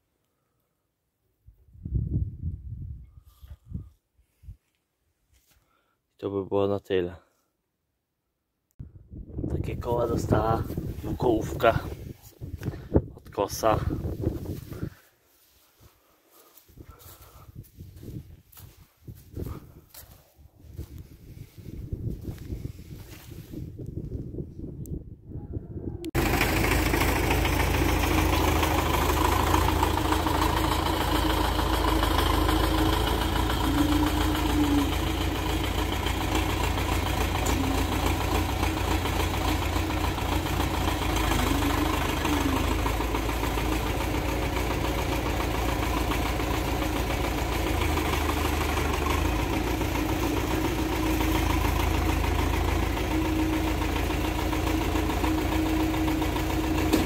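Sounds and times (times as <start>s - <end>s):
tractor diesel engine running: 8.8s - 24.2s, 26.0s - 57.0s.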